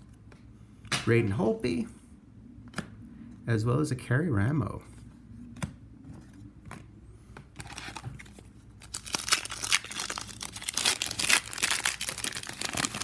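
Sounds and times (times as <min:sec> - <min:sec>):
card pack wrapper crinkling: 0:07.6 - 0:13.0.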